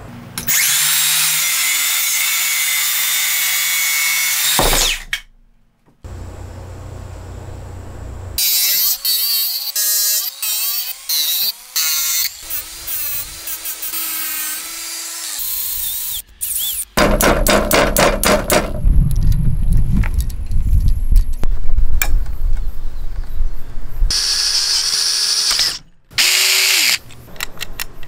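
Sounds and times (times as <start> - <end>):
angle grinder cutting steel: 8.4 - 16.9, 24.1 - 27.0.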